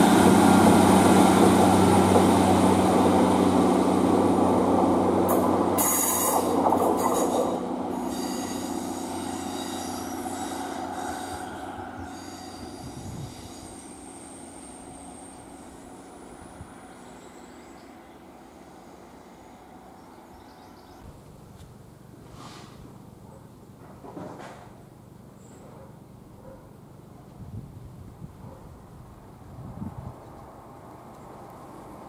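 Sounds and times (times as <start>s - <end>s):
diesel train engine running: 0.0s - 21.0s
wheel flange squeal: 5.8s - 18.0s.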